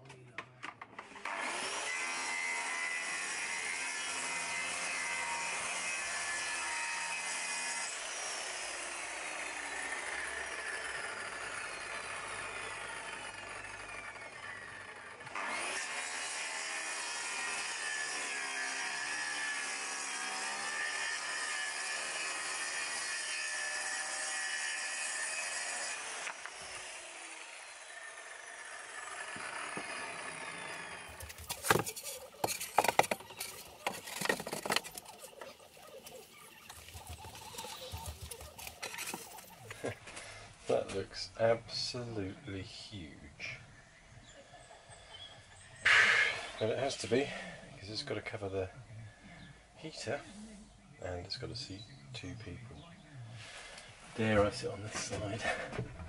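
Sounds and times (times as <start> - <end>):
circular saw cutting plywood: 1.1 - 40.3.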